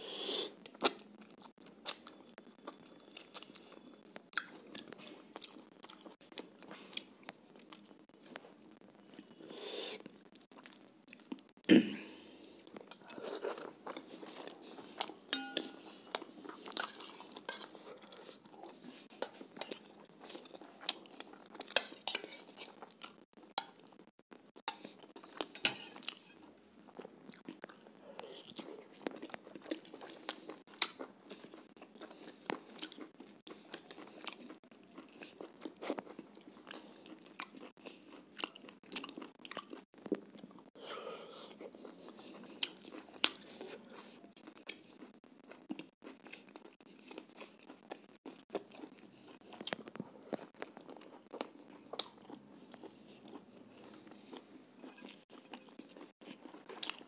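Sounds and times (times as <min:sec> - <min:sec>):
man chewing and biting: 0:24.6 - 0:40.8, 0:41.4 - 0:57.0.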